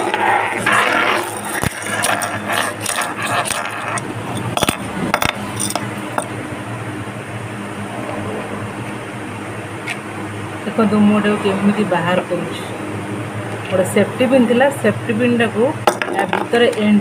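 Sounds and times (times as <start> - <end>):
safety pin clicking and scratching: 0.0 - 6.3
steady hum: 0.0 - 17.0.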